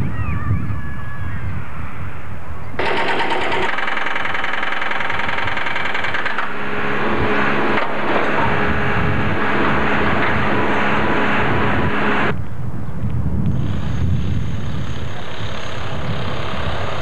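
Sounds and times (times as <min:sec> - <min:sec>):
hydraulic breaker hammering concrete: 0:02.8 - 0:12.3
diesel engine running: 0:02.8 - 0:12.4.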